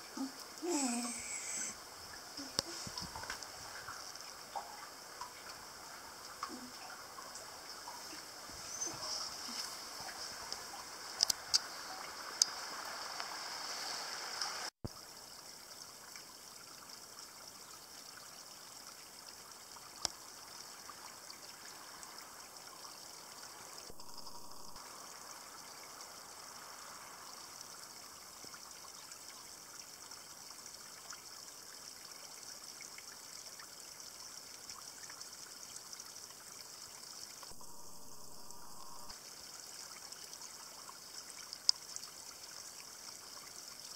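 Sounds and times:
water trickling over rocks: 0.0s - 43.9s.

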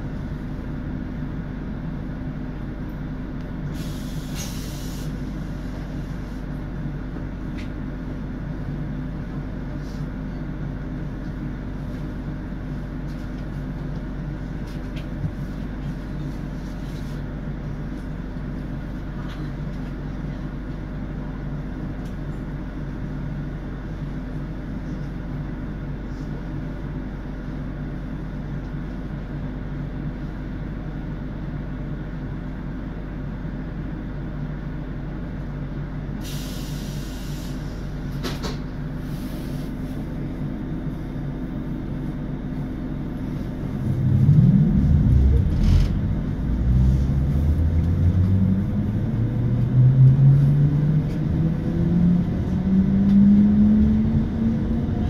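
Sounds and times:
electric train rumbling: 0.0s - 55.0s
short hiss: 3.8s - 5.2s, 36.2s - 37.8s.

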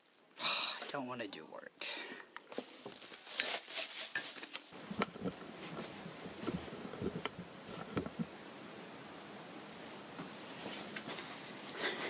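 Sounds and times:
plastic crinkling and rustling: 2.4s - 8.2s.

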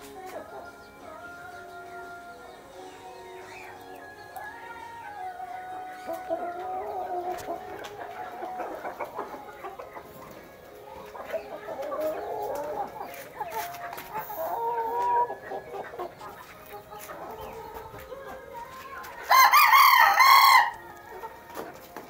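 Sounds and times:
chickens clucking: 0.0s - 22.0s
rooster crowing: 19.3s - 20.8s.

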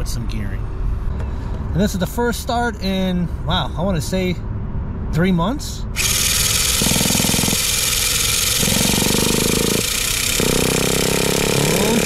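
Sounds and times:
model car engine running loudly: 6.0s - 12.0s.

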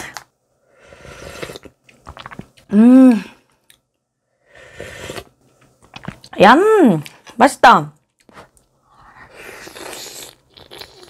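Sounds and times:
person slurping broth: 0.8s - 1.8s, 4.5s - 5.4s, 9.2s - 11.0s
person humming: 2.7s - 3.4s
mouth clicks and chewing: 9.7s - 11.0s.

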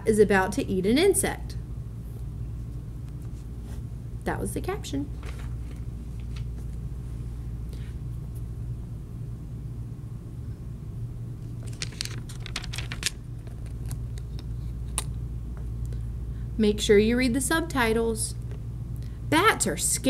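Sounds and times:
steady low hum: 0.0s - 20.0s
magazine pages turning: 5.2s - 6.7s, 11.6s - 14.4s.

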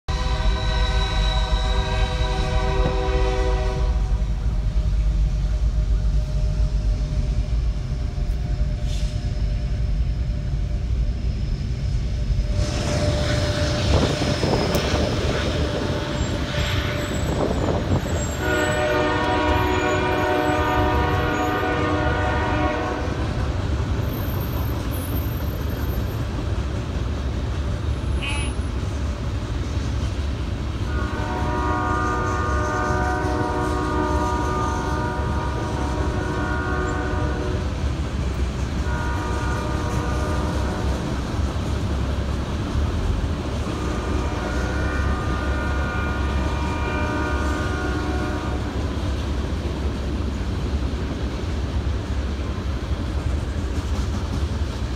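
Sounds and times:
freight train rumbling: 0.0s - 54.9s
locomotive air horn: 0.1s - 4.5s, 12.5s - 23.4s, 28.0s - 28.7s, 30.8s - 37.8s, 38.8s - 41.2s, 43.6s - 48.8s.

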